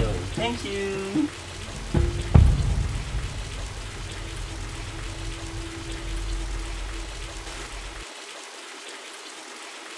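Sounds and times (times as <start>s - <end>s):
water rushing: 0.0s - 9.9s.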